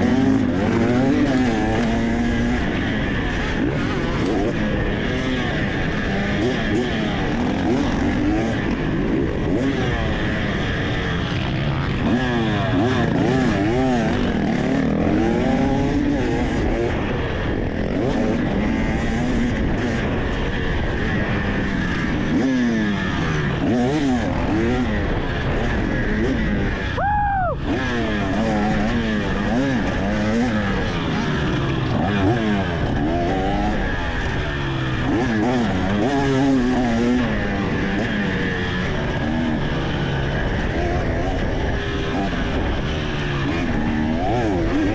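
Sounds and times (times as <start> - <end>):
dirt bike engine revving: 0.0 - 44.9.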